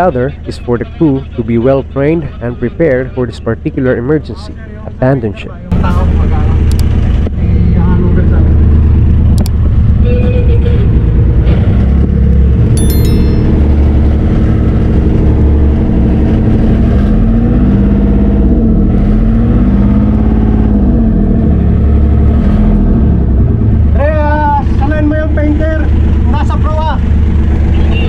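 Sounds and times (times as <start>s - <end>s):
diesel engine droning: 5.7s - 28.0s.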